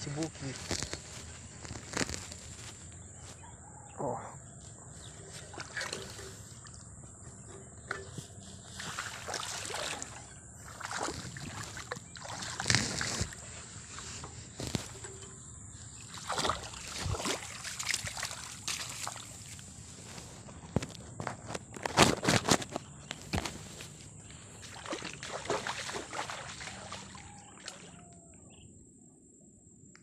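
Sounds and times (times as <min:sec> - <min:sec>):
footsteps sloshing through mud: 0:04.6 - 0:28.1.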